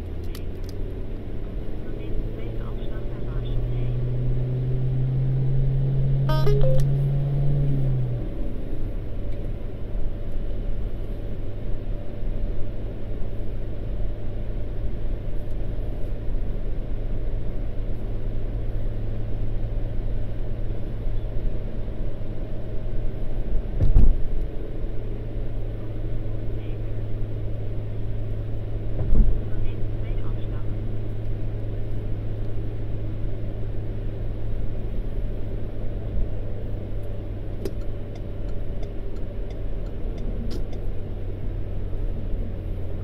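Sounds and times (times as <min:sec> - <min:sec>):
car engine and tyre hum: 0:00.0 - 0:43.0
short rising chirp: 0:06.3 - 0:07.0.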